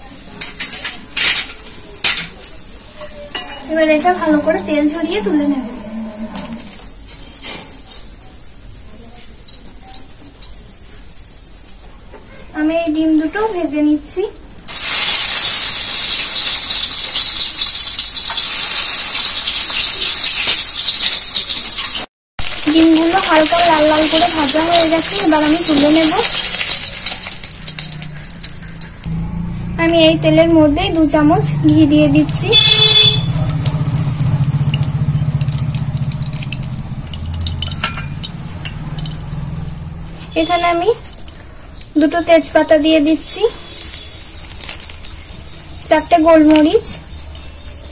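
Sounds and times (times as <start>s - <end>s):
eggs sizzling in hot oil: 14.6s - 29.1s, 33.1s - 40.0s, 43.6s - 46.8s
crackles and pops: 14.8s - 29.1s, 33.3s - 38.4s, 43.8s - 45.5s.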